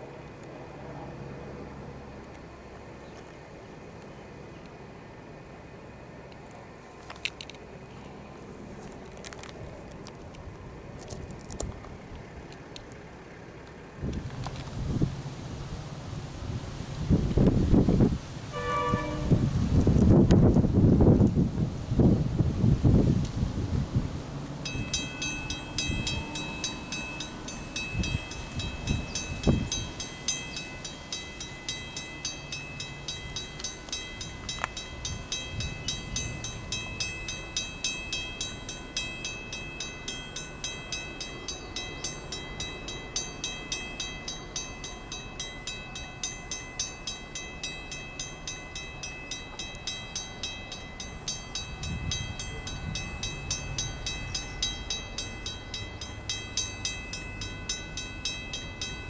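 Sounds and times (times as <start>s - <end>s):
mechanical warning bell ringing: 24.6s - 59.0s.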